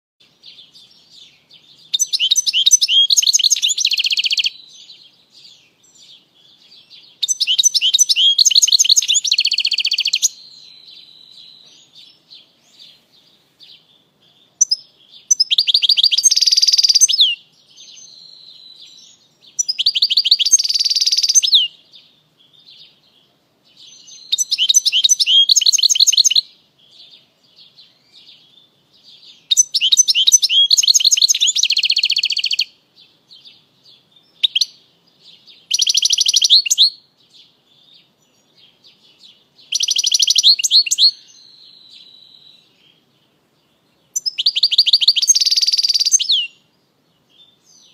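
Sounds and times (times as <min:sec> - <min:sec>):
goldfinch singing: 0:00.4 - 0:32.7, 0:33.3 - 0:46.6
buzzy bird trill: 0:00.6 - 0:21.8, 0:23.8 - 0:27.1, 0:27.9 - 0:32.7, 0:34.2 - 0:37.0, 0:38.7 - 0:42.7, 0:44.1 - 0:46.6.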